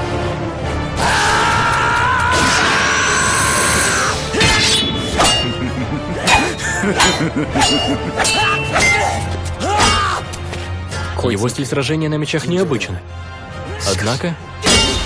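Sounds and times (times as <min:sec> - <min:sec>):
dramatic background music: 0:00.0 - 0:15.0
steel swords clashing: 0:04.3 - 0:10.4, 0:14.6 - 0:15.0.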